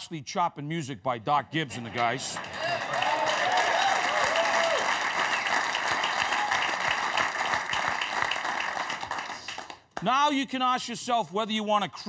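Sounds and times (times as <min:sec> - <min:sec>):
audience applauding: 0:01.8 - 0:10.0.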